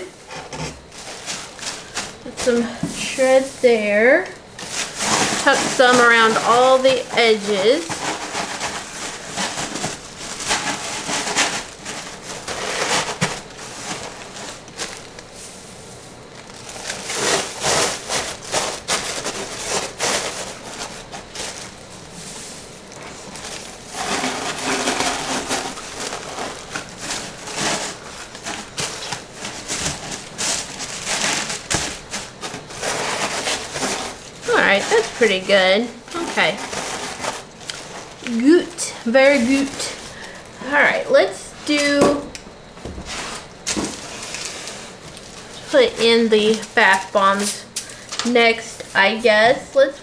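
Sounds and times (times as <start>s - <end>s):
paper shred rustling and crackling: 0.2s - 50.0s.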